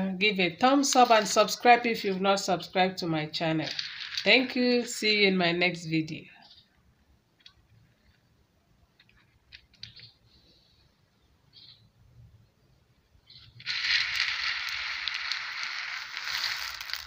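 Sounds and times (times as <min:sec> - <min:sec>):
dried beans rattling in metal tray: 0:03.6 - 0:05.0, 0:13.4 - 0:17.0
faint chirps: 0:10.0 - 0:12.0.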